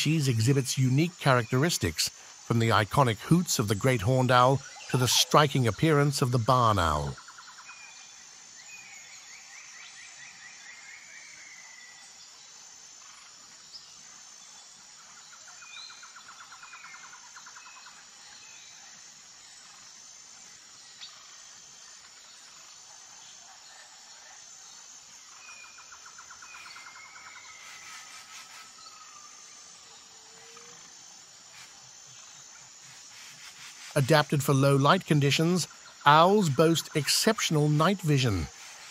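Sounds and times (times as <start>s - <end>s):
birds chirping: 0.0s - 7.5s, 24.8s - 38.9s
insect buzz: 0.0s - 38.9s.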